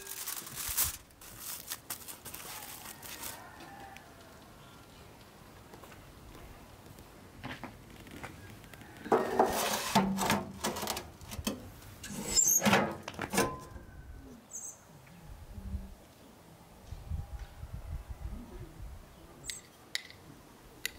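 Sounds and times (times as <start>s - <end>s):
metal pan scraping against oven: 9.1s - 11.1s, 12.0s - 13.7s.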